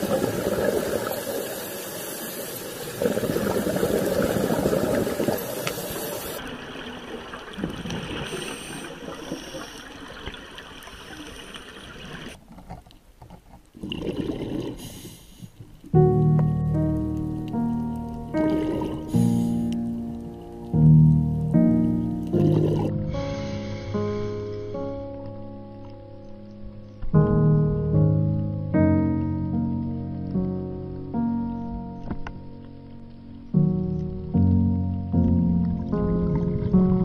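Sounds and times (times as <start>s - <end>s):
rushing bubbling water: 0.0s - 12.4s, 13.8s - 15.2s, 18.2s - 23.0s.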